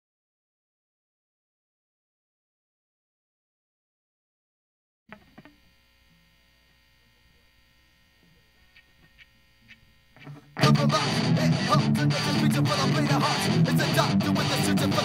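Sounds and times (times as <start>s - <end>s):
faint amplifier hum: 5.1s - 15.0s
punk rock band: 10.6s - 15.0s.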